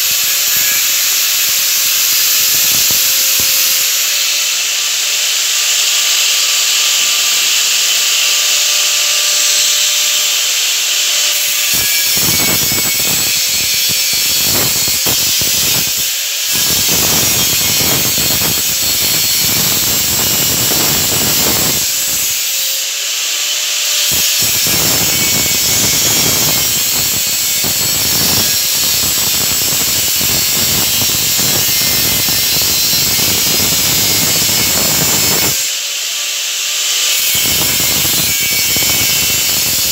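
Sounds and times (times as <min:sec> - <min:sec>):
angle grinder grinding steel: 0:00.0 - 0:39.9
angle grinder spinning free: 0:00.0 - 0:39.9.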